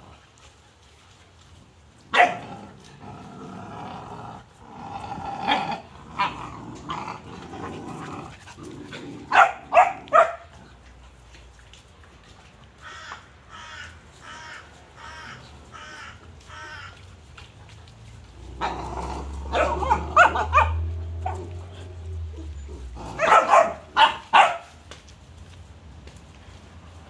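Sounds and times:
puppies barking: 2.1 - 2.6, 9.2 - 10.6, 18.5 - 24.8
puppies growling: 2.1 - 11.4, 17.8 - 24.3.

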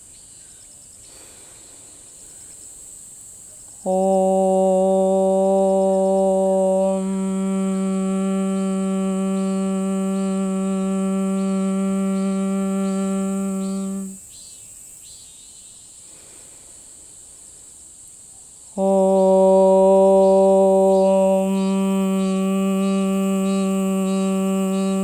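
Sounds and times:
woman chanting om: 3.5 - 14.2, 18.7 - 25.0.

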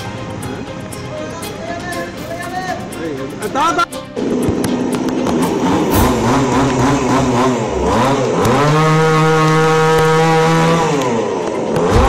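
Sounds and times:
chainsaw engine revving: 5.5 - 12.0.

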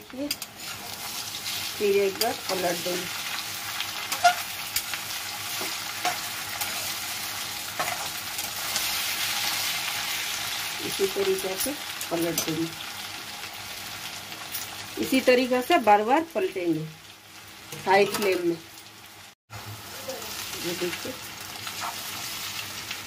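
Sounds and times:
potatoes sizzling in hot oil: 0.0 - 23.0
metal spatula scraping a pan: 4.0 - 4.9.

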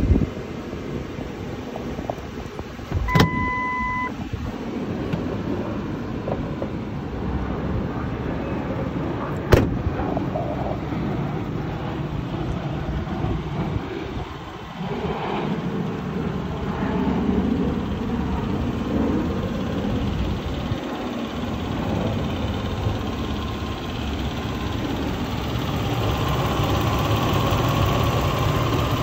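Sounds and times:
car door slamming: 2.9 - 3.8, 9.5 - 9.9
electronic beep: 3.1 - 4.2
pickup truck idling: 15.8 - 29.0.

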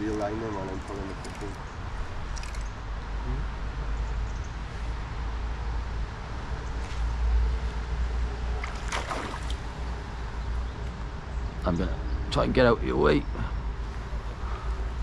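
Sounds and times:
river water: 8.2 - 10.6.

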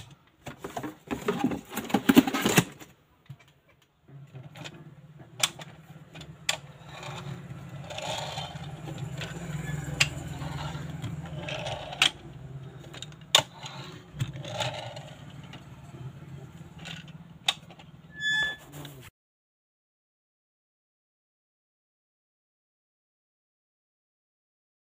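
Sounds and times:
toy gears whirring: 5.4 - 15.8, 16.7 - 17.8
toy scooters clicking: 5.4 - 15.8.

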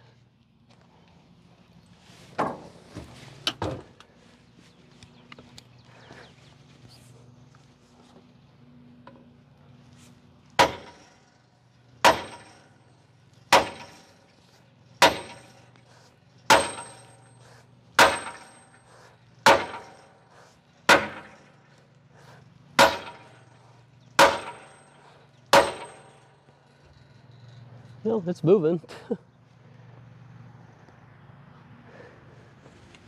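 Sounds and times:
sledgehammer striking metal: 10.6 - 11.4, 12.0 - 12.9, 13.5 - 14.2, 15.0 - 15.7, 16.5 - 20.3, 20.9 - 21.6, 22.8 - 23.6, 24.2 - 26.4.

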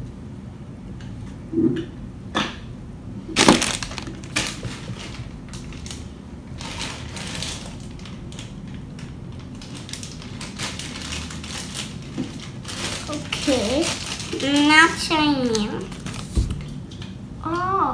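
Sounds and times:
plastic packaging crackling: 3.4 - 16.8
plastic packaging rustling: 3.4 - 16.8.

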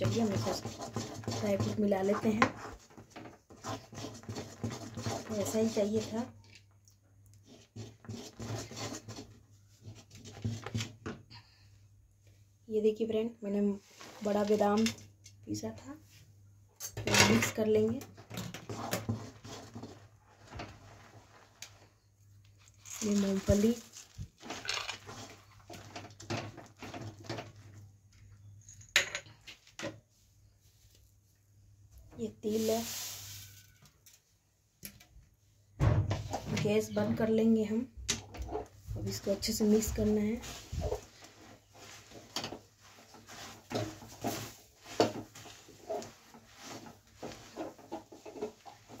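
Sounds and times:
spoon scraping and stirring: 0.0 - 11.0, 16.8 - 29.0, 38.3 - 49.0.

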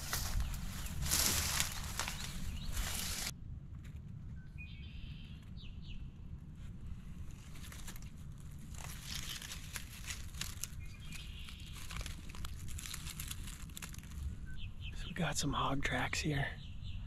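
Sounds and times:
dry leaves crackling under hand: 0.0 - 3.3, 7.2 - 14.3
wind rumble on microphone: 0.0 - 14.9.

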